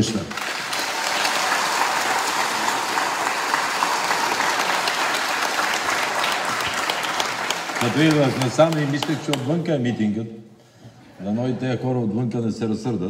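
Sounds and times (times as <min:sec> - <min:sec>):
large audience applauding: 0:00.0 - 0:09.7.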